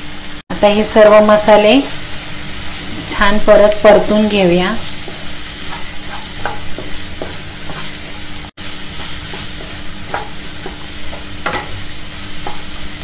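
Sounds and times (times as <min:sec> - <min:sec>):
masala sizzling in oil: 0:00.0 - 0:13.0
wooden spatula scraping pan: 0:04.8 - 0:13.0.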